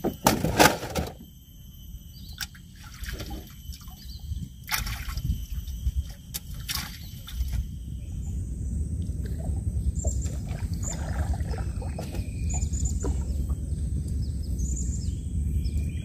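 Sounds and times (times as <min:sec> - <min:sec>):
water splashing and sloshing: 0:02.3 - 0:08.0, 0:09.0 - 0:14.0.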